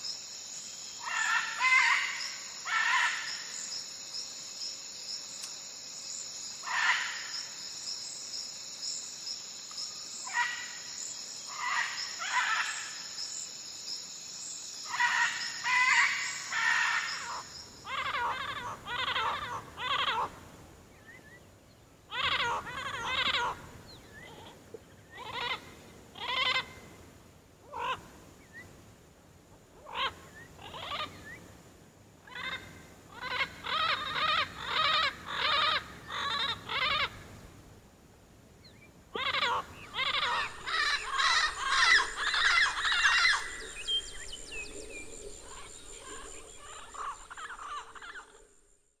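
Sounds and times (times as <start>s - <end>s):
animal calling: 39.2s - 48.5s.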